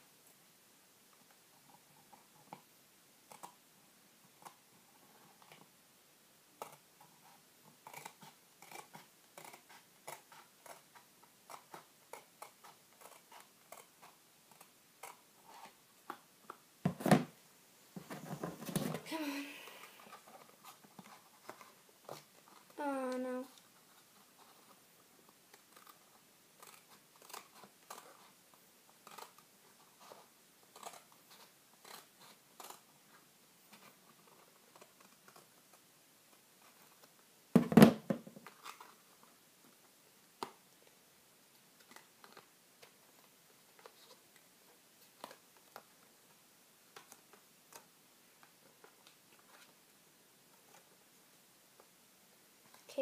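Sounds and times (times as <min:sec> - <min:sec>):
scissors snipping: 0:26.6 - 0:28.2.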